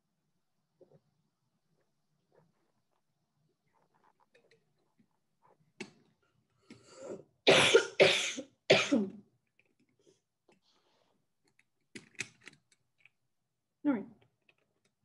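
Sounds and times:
woman coughing: 0:07.5 - 0:09.2.

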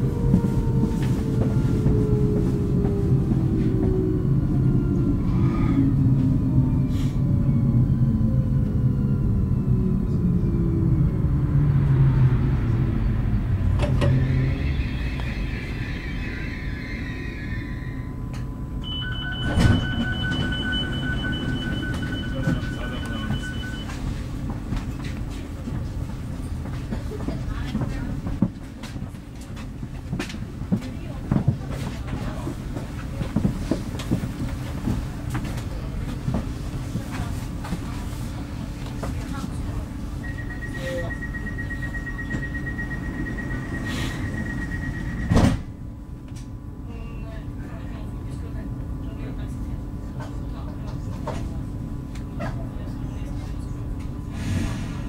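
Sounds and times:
train equipment rumbling: 0:00.0 - 0:46.7
two-tone door warning beeping: 0:18.8 - 0:24.1, 0:40.2 - 0:45.6
train doors shutting thump: 0:19.4 - 0:20.5, 0:45.1 - 0:45.8.

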